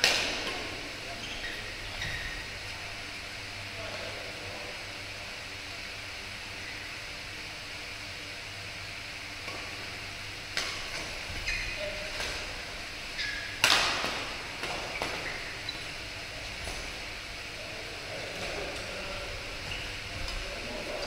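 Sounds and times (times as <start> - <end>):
rackets hitting shuttlecock: 0.0 - 0.8, 10.5 - 11.4, 13.4 - 15.5
shoes squeaking on court: 1.1 - 2.6, 10.6 - 17.0, 19.6 - 21.0.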